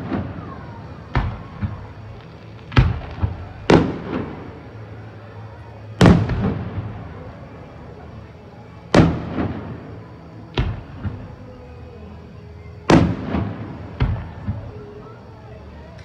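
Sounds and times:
fireworks shells booming: 0.0 - 4.7, 6.0 - 7.2, 8.9 - 11.3.

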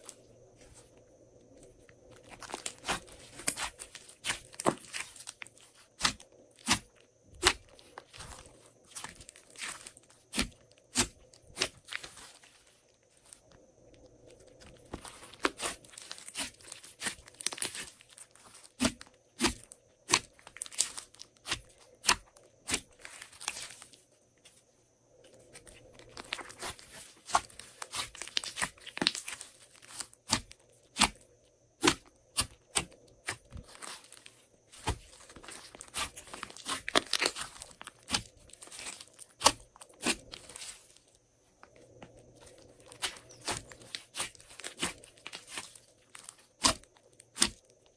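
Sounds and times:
slime popping and crackling: 26.2 - 31.1, 34.8 - 40.8.

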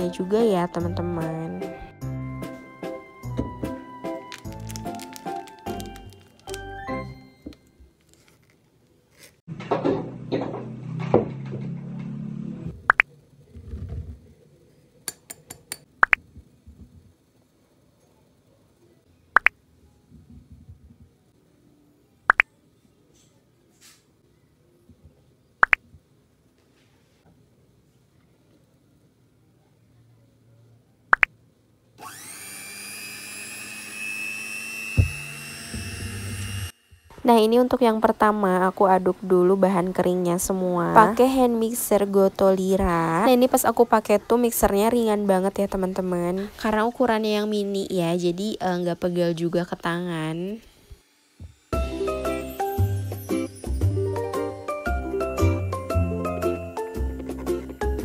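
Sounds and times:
dry ingredients pouring: 4.2 - 6.8
hand mixer motor whine: 32.0 - 37.6, 50.5 - 53.2.

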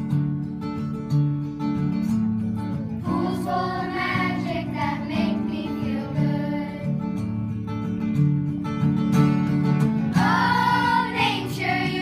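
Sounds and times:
acoustic guitar strumming: 0.0 - 12.0
people singing: 3.0 - 7.2, 10.1 - 12.0.

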